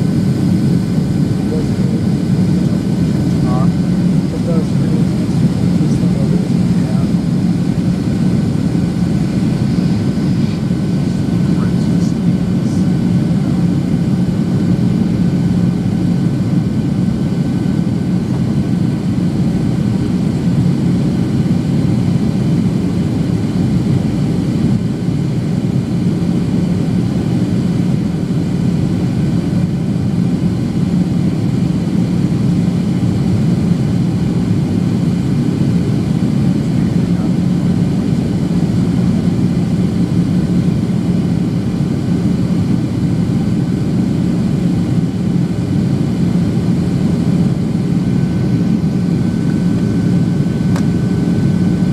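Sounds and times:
rush of airflow: 0.0s - 14.2s
jet engine hum: 0.0s - 51.9s.

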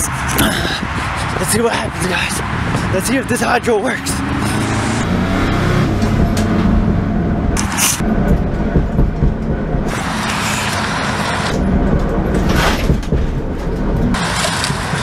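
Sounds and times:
tyres rumbling on road: 0.0s - 15.0s
car body rattles: 5.8s - 10.0s, 11.5s - 14.2s.

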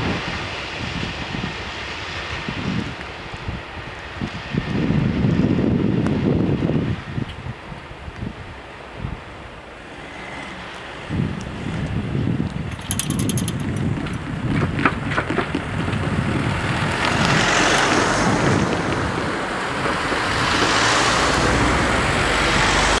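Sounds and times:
wind buffeting microphone: 0.0s - 9.8s, 10.4s - 22.8s
car engine and tyre noise: 7.3s - 23.0s.

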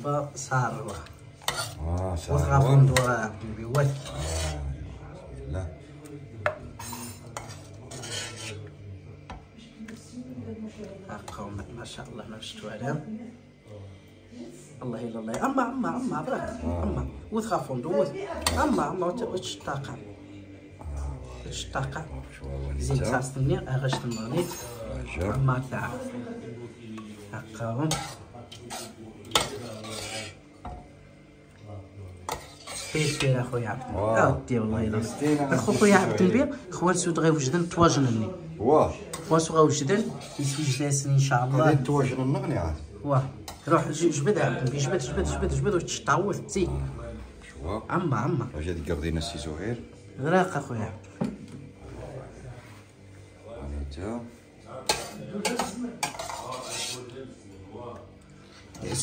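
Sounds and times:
cutlery clinking on dishes: 6.4s - 8.6s, 23.8s - 24.8s, 27.8s - 30.9s, 54.8s - 57.1s.

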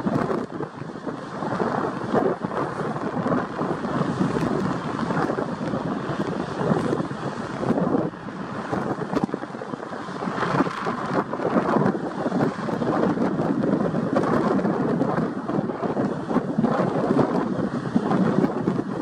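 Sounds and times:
distant jet engines roaring: 0.0s - 19.0s
wind buffeting microphone: 0.0s - 19.0s.

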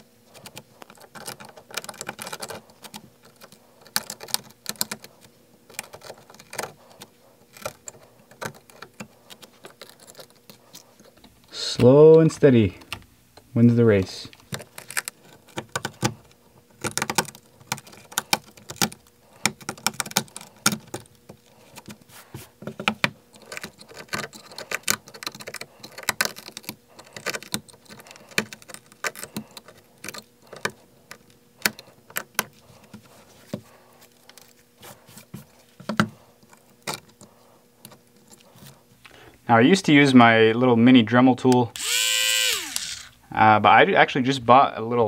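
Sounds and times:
glass being pried and scraped: 23.3s - 30.7s.

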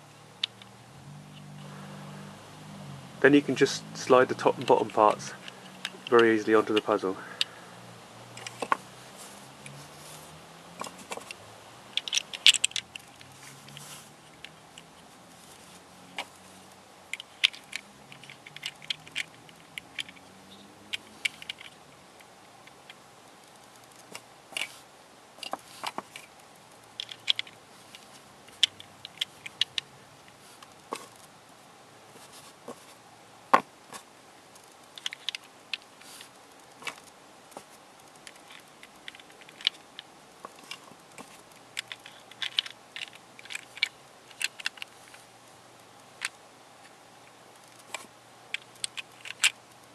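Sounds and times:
plastic puzzle pieces clicking: 4.2s - 7.6s, 8.3s - 8.8s, 10.7s - 15.0s, 17.1s - 21.9s, 25.4s - 26.3s, 26.9s - 29.9s, 34.6s - 37.1s, 38.0s - 45.2s, 46.2s - 46.4s, 47.6s - 49.6s.

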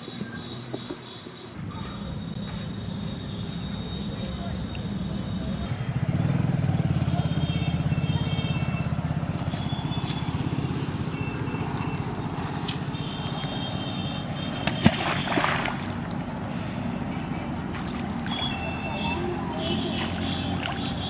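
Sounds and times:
bait splashing into water: 14.6s - 16.2s.

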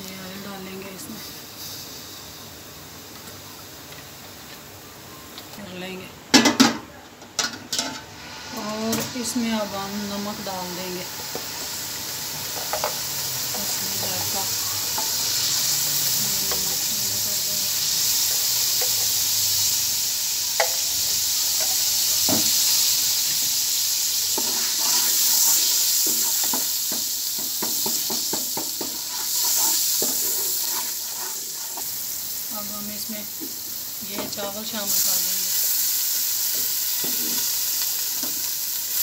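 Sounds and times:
oil sizzling in a pot: 0.0s - 39.0s
spatula clicking and scraping: 24.4s - 26.6s, 27.4s - 32.0s.

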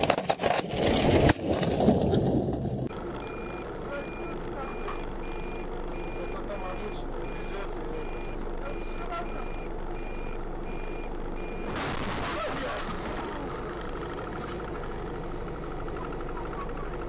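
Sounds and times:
electronic warning beeps: 3.2s - 11.8s
loud crash of impact: 11.7s - 13.7s.

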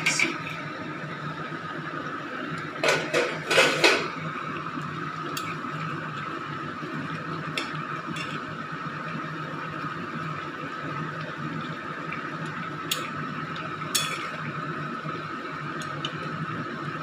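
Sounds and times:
steady hum: 0.0s - 17.0s
metal lid clattering on pan: 2.8s - 4.1s, 14.0s - 14.3s
metal spatula stirring and tapping pan: 13.9s - 14.4s.

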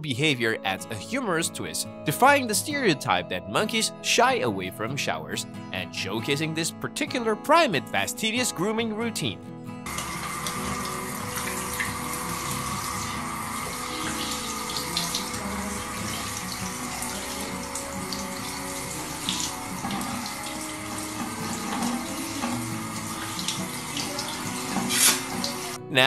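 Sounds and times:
shower water splashing on tiles: 9.9s - 25.8s.

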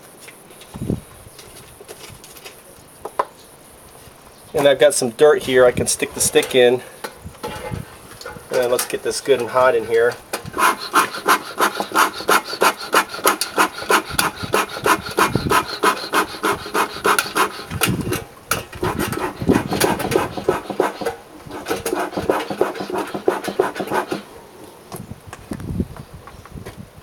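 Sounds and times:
bellows smoker air puffs: 10.4s - 24.4s.

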